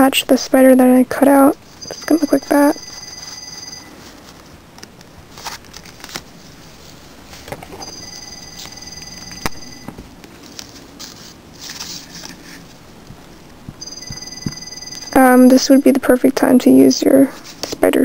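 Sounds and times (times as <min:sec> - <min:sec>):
paper rustling: 0:02.8 - 0:08.8, 0:10.2 - 0:13.4.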